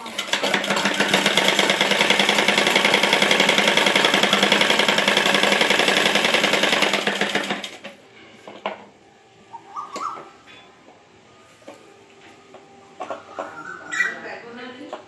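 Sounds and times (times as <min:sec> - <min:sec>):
sewing machine clatter: 0:00.0 - 0:08.0.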